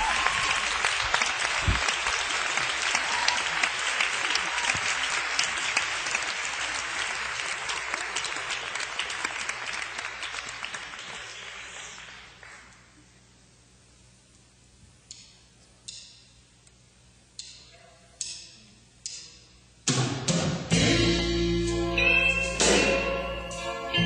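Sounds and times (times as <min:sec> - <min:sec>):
audience applauding: 0:00.0 - 0:12.9.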